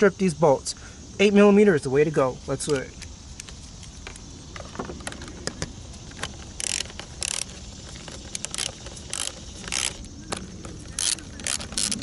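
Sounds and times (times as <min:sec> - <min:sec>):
metal on metal clicks: 0:05.2 - 0:12.0
ratchet wrench clicking: 0:06.1 - 0:12.0.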